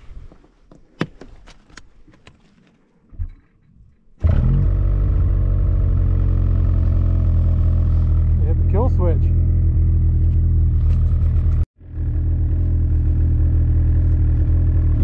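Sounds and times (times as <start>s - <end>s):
snowmobile engine running loud: 4.3s - 15.0s.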